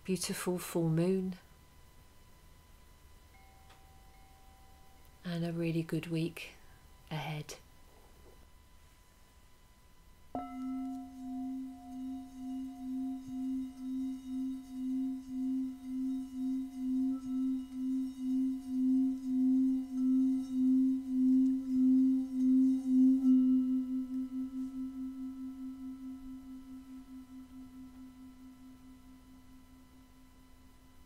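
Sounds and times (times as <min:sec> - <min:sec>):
singing bowl ringing: 0:02.5 - 0:05.2, 0:10.3 - 0:31.0.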